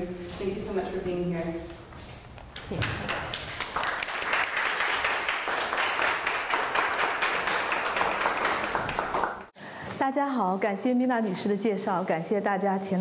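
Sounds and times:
audience applauding: 2.7 - 9.5.

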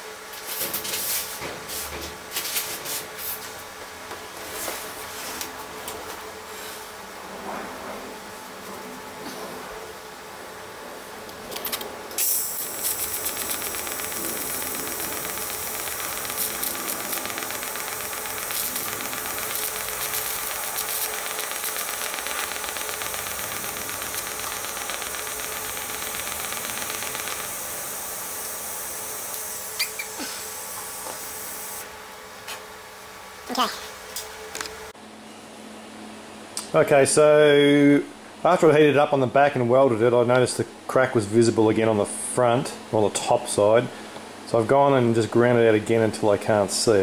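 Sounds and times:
welding arc crackling hiss: 12.1 - 31.9.

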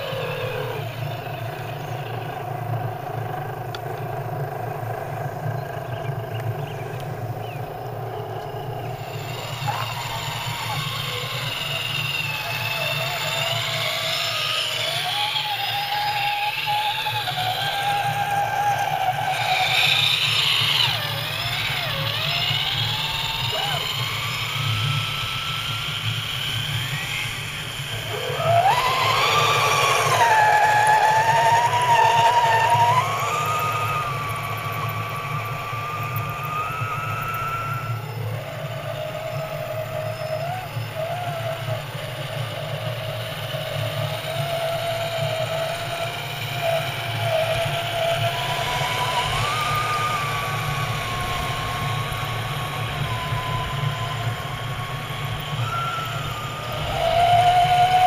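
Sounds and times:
electric motor and gear whine: 0.0 - 58.0
low hum: 0.0 - 58.0.

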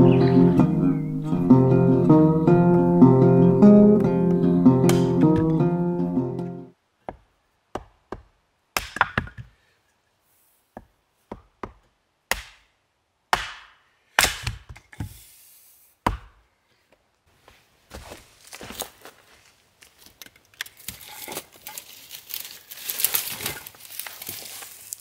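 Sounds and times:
hatchet splitting wood: 7.0 - 9.5, 10.8 - 12.7, 13.3 - 15.0, 16.0 - 16.4
soft rustling: 16.8 - 25.0.

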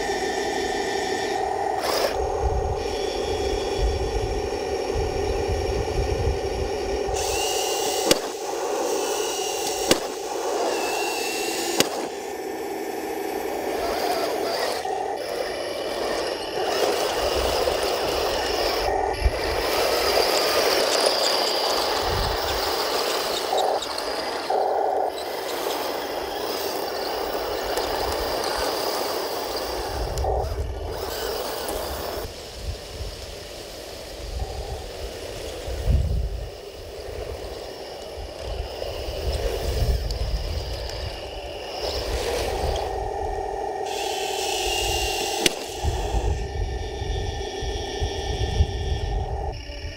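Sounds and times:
tracks scraping and rattling: 0.0 - 3.7, 7.2 - 46.5
electric motors and gearboxes running: 0.0 - 49.9
sharp clicks: 7.2 - 32.3, 43.8 - 46.6.

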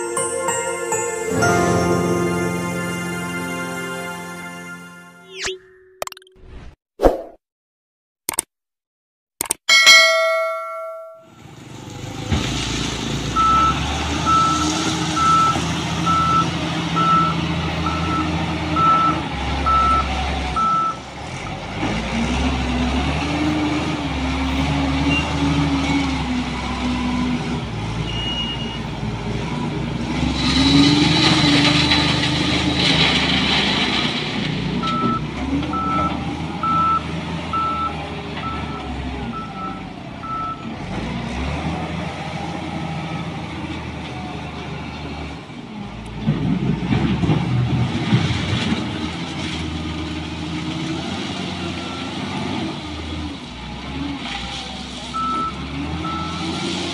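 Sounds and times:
wheel loader engine revving: 11.4 - 56.9.

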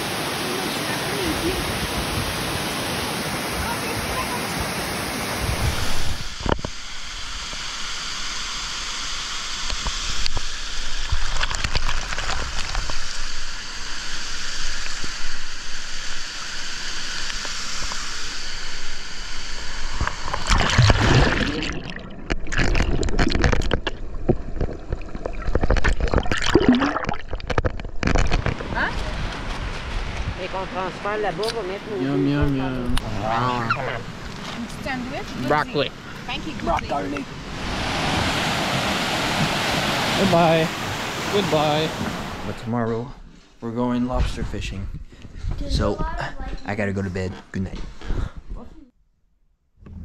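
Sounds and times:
waterfall roaring: 0.0 - 6.3, 30.4 - 42.6
water sloshing and gurgling: 9.5 - 31.8, 32.9 - 43.6.

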